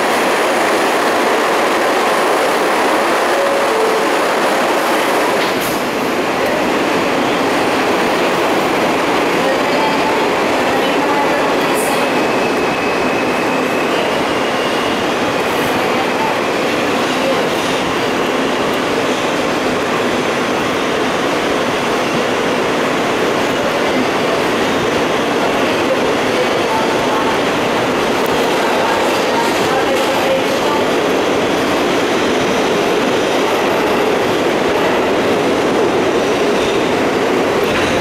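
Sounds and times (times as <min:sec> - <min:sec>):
subway train wheels rumbling: 0:00.0 - 0:38.0.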